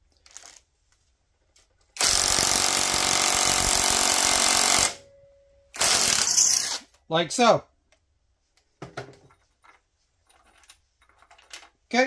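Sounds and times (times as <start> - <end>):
impact wrench hammering: 2.0 - 5.1.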